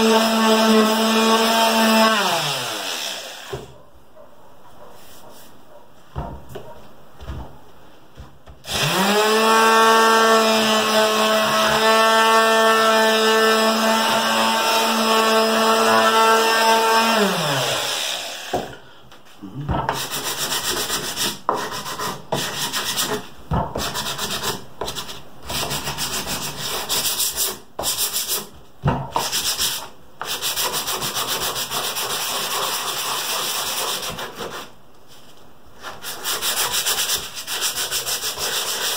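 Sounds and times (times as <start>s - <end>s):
hand sanding wood: 8.7s - 18.0s, 19.9s - 34.8s, 35.8s - 38.9s.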